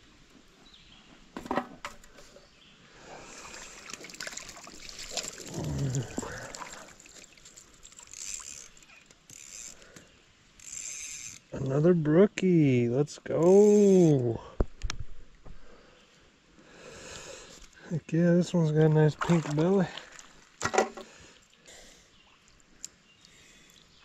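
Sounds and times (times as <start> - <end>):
water splashing and sloshing: 3.3 - 9.1, 19.0 - 21.6
short wordless vocal sound: 5.5 - 6.7.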